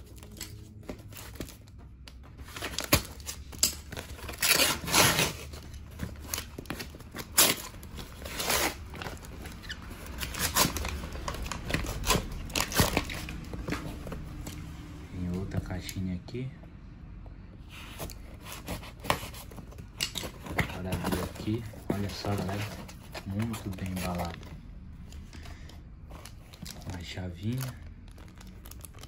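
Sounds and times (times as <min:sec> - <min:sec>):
paper tearing and crumpling: 0:02.5 - 0:09.3.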